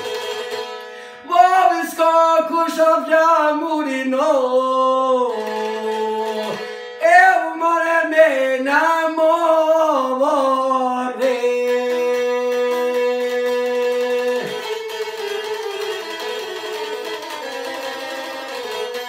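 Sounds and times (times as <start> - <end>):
long-necked lute playing: 0.0 - 19.0
man singing: 1.2 - 16.4.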